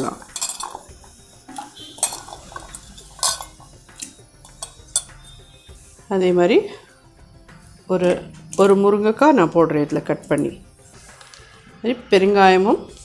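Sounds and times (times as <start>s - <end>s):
onions clinking against steel: 0.0s - 5.4s.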